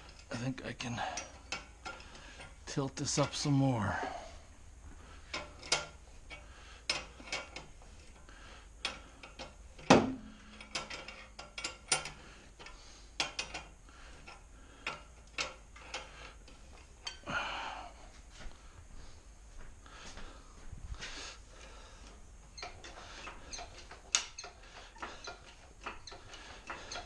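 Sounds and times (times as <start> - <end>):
socket ratchet clicking: 22.6 - 27.0.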